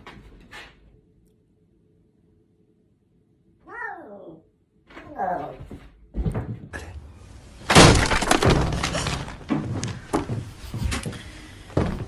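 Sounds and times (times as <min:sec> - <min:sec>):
crash and clatter: 0:07.7 - 0:09.6.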